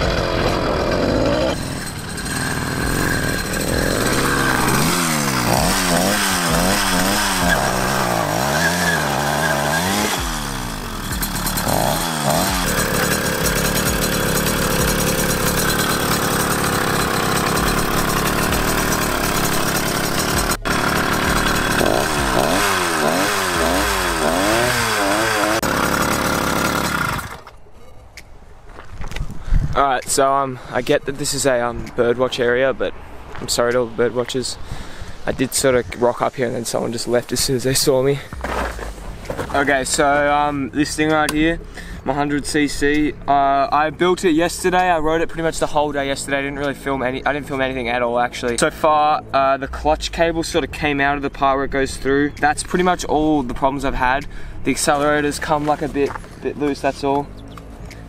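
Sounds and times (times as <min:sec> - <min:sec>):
two-stroke engine revving: 0:00.0 - 0:27.6.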